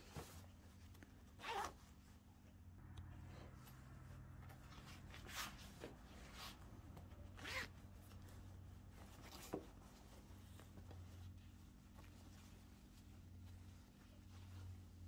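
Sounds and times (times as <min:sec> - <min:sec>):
faint steady hum: 0:00.0 - 0:15.0
cloth and zipper rasping: 0:01.3 - 0:02.0, 0:04.7 - 0:08.4.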